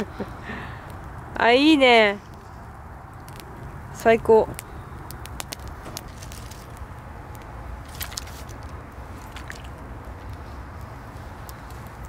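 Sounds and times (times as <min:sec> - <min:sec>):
campfire crackling: 0:00.0 - 0:12.0
sharp pops: 0:04.4 - 0:09.8.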